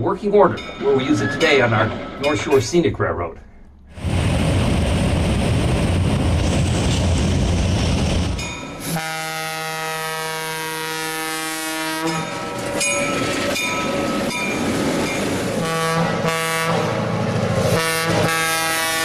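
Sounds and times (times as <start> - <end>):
train rumbling past: 0.0 - 19.0
bell dinging: 0.5 - 2.7, 12.1 - 15.3
train air horn blowing: 8.8 - 12.3, 15.6 - 17.1, 17.7 - 19.0.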